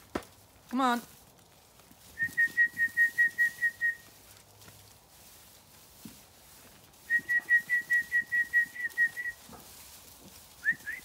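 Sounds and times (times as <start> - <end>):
shepherd's whistle call: 2.2 - 4.1, 7.1 - 9.4, 10.6 - 11.0.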